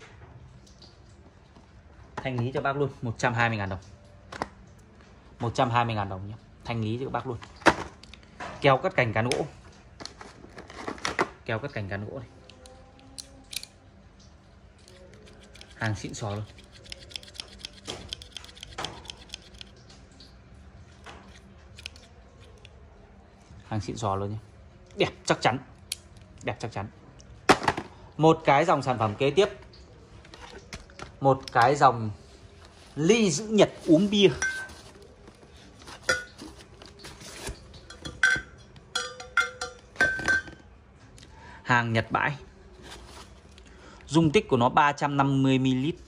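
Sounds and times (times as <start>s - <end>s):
tumblers clinking: 33.8s - 35.1s, 35.8s - 40.7s.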